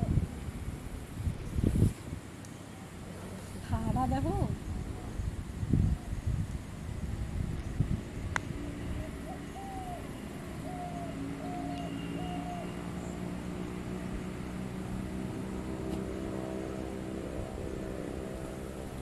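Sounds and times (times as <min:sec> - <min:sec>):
engine drone: 0:00.0 - 0:19.0.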